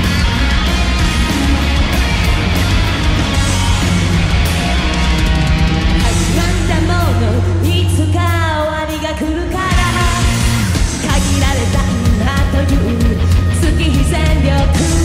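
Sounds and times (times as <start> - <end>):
live rock band playing: 0.0 - 15.0
woman singing: 6.0 - 15.0.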